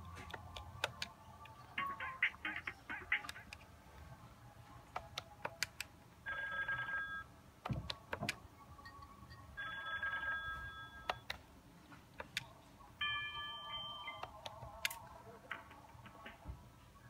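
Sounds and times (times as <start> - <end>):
sharp clicks: 0.3 - 1.6
phone ringtone trilling: 6.2 - 7.3, 8.8 - 11.2, 13.0 - 14.4.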